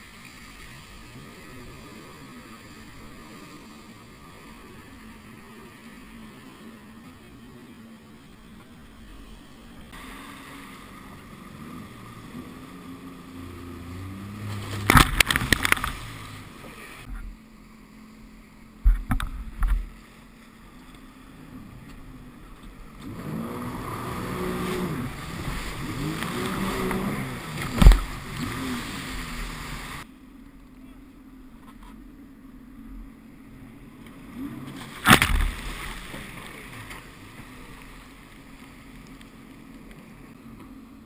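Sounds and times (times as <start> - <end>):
jet ski engine revving: 0.0 - 41.0
hull slamming over waves: 9.9 - 17.4, 21.6 - 30.0, 34.2 - 38.2.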